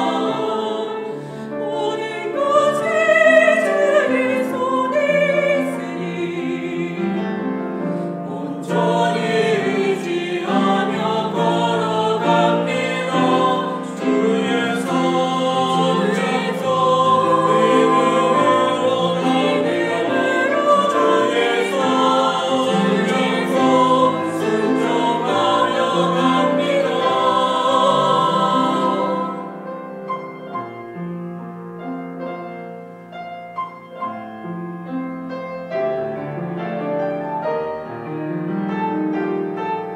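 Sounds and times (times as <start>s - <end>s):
choir singing a hymn: 0.0s - 30.8s
piano accompaniment: 0.0s - 39.9s.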